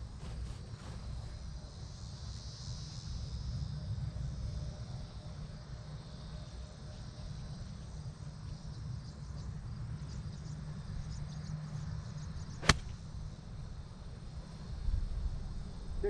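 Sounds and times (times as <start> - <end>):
insects chirping: 0.0 - 16.0
golf club striking ball: 12.6 - 13.0.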